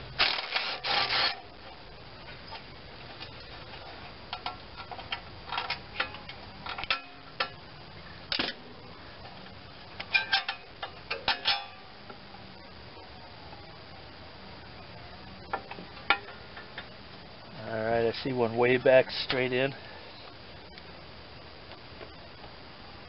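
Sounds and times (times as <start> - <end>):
ratchet clicking: 0.2 - 1.4.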